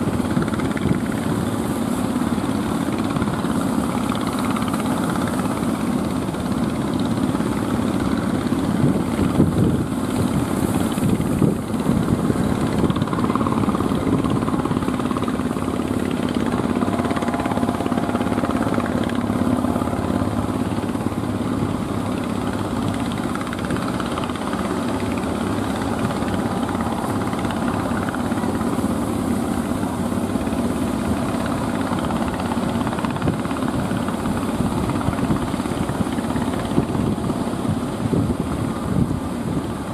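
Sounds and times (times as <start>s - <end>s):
boat engines rumbling: 0.0s - 39.9s
wind: 0.0s - 39.9s.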